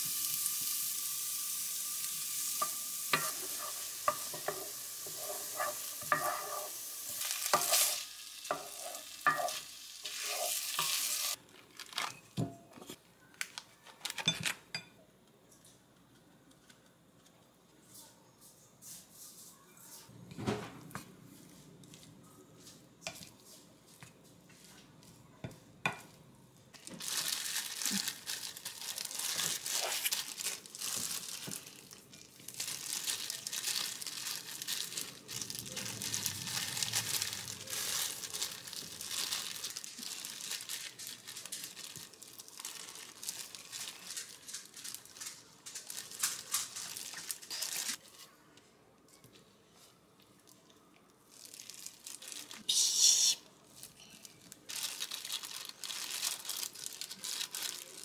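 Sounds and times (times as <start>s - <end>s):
plastic glove crinkling: 0.0s - 14.6s, 26.7s - 48.3s, 51.1s - 58.0s.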